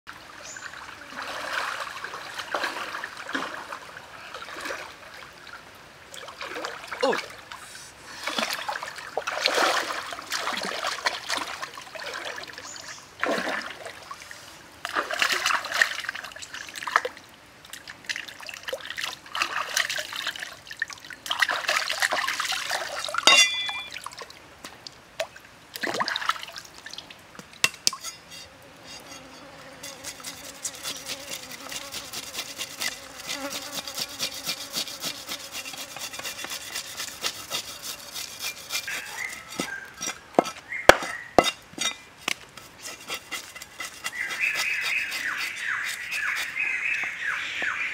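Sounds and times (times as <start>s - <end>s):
water splashing and sloshing: 0.1s - 28.5s
knife scraping fish scales: 27.6s - 46.7s.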